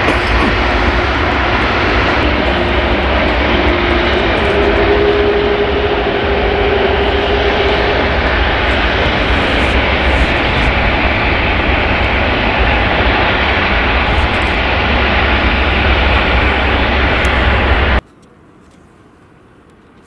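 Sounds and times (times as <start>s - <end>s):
jet engines roaring: 0.0s - 18.0s
faint outdoor background noise: 12.0s - 20.0s.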